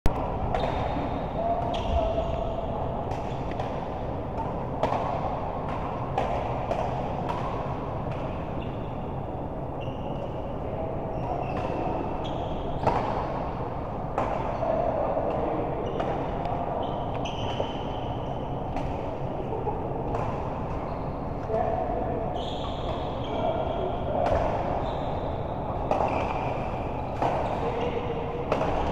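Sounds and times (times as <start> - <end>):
steady hall hum: 0.1 - 28.9
shoes squeaking on floor: 16.8 - 18.0, 22.4 - 23.5, 24.8 - 25.5
sharp racket hits: 28.4 - 28.9.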